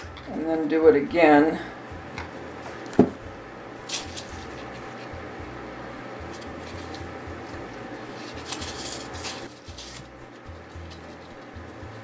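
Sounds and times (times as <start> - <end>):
low steady hum: 0.0 - 12.0
twine rubbing and rustling: 3.9 - 5.2, 6.2 - 12.0.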